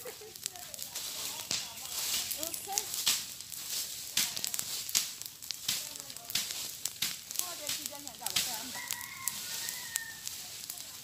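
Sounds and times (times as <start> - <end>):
fire crackling with pops: 0.0 - 11.0.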